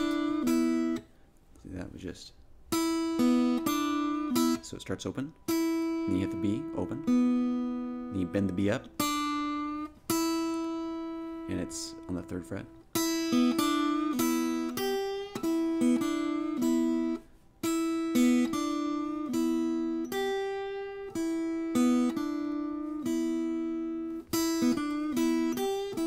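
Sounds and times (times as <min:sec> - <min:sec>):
acoustic guitar blues lick: 0:00.0 - 0:01.0, 0:02.7 - 0:04.7, 0:05.4 - 0:26.0.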